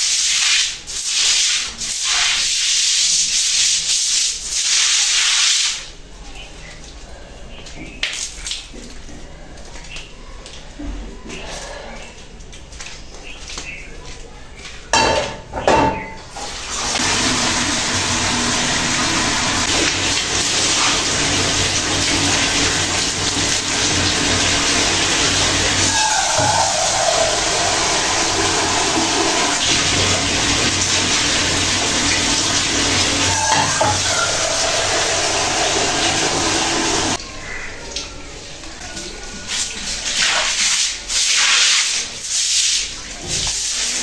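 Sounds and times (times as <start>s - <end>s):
tap running into sink: 18.9s - 37.2s.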